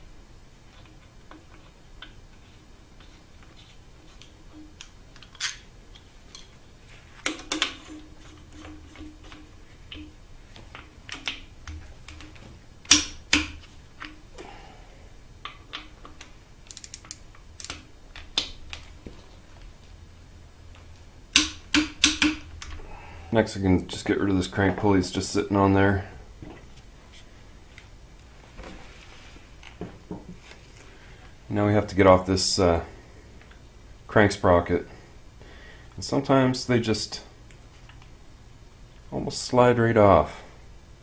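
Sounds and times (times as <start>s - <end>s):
wrench and socket clicking: 16.7s - 17.8s.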